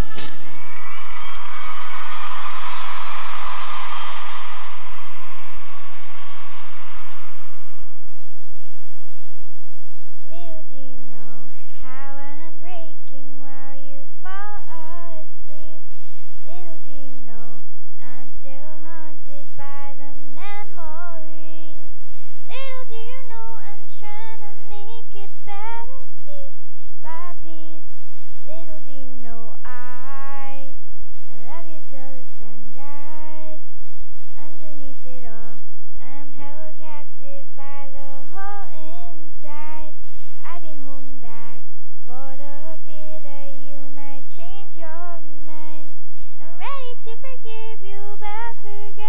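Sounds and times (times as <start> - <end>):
girl singing into microphone: 0.0 - 8.0, 10.2 - 49.0
girl breathing: 46.0 - 46.4.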